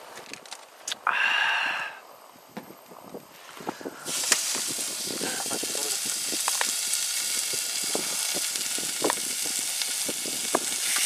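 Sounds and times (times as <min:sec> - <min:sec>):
fat popping and crackling: 0:02.5 - 0:11.0
meat sizzling on a grill pan: 0:04.0 - 0:11.0.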